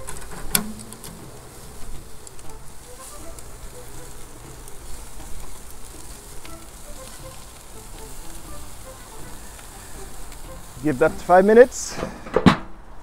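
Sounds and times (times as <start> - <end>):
chicken sizzling on a grill: 0.0 - 12.2
fat crackling in coals: 0.0 - 13.0.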